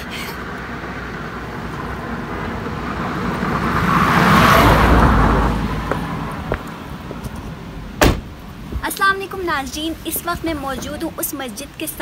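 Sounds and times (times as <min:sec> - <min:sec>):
car driving past: 0:00.4 - 0:07.1.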